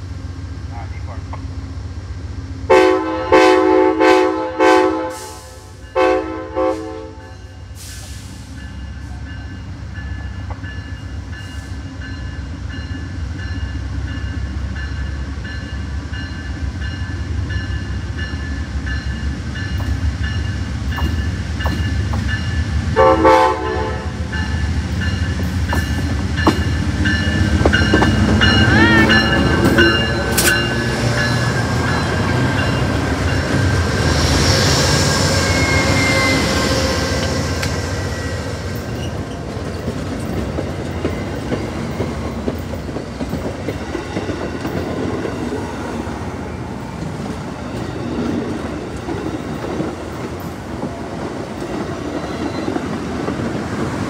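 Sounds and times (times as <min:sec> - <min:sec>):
locomotive air horn blasts: 0:02.7 - 0:08.2, 0:23.0 - 0:24.2
wavering wheel squeal: 0:34.7 - 0:37.4.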